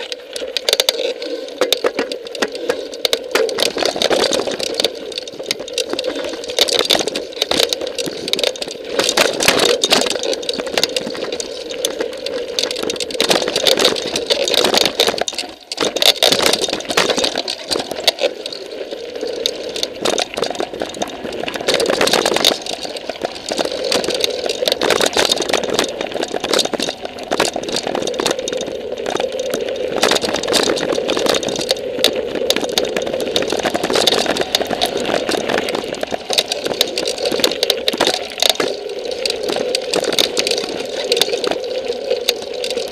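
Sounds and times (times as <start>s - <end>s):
bike rattling over stones: 0.0s - 42.9s.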